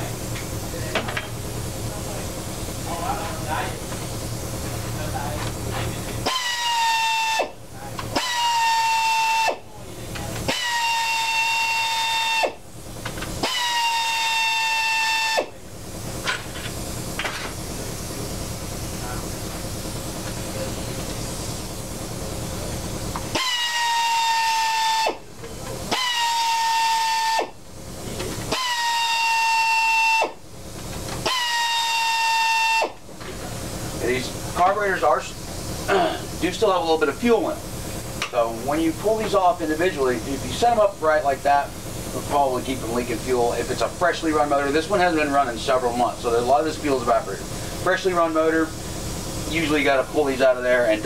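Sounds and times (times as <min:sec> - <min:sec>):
pneumatic drill whine: 0:06.2 - 0:22.3, 0:23.0 - 0:50.4
rough noise without whine: 0:33.0 - 0:51.0.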